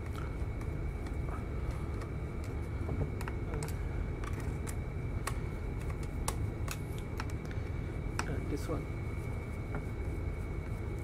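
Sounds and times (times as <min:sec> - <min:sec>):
low background hum: 0:00.0 - 0:11.0.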